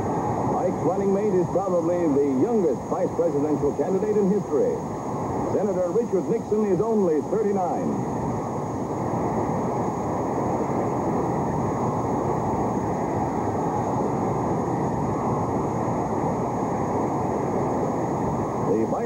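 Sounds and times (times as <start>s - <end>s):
faint high tape whine: 0.0s - 19.0s.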